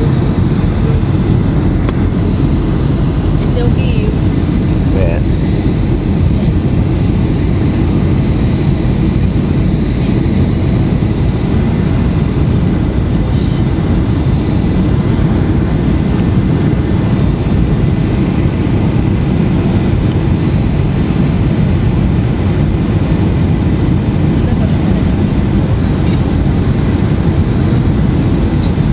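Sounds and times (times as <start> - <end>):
aircraft rumble in flight: 0.0 - 28.9.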